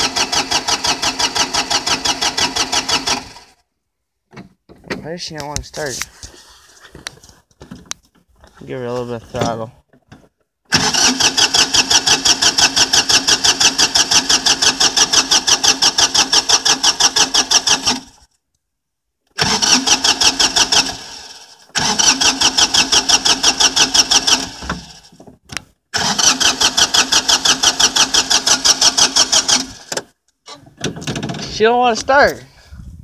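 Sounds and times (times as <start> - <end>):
diesel engine cranking: 0.0 - 3.6, 10.6 - 18.3, 19.3 - 25.3, 25.9 - 32.4.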